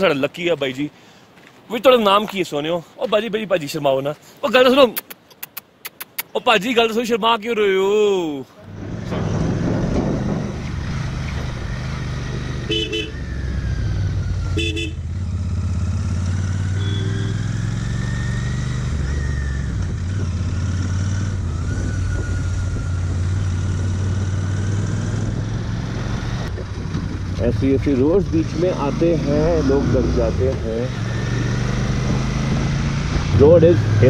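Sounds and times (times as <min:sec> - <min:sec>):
horn toots: 0:12.5 - 0:13.3, 0:14.5 - 0:15.1, 0:16.7 - 0:17.6.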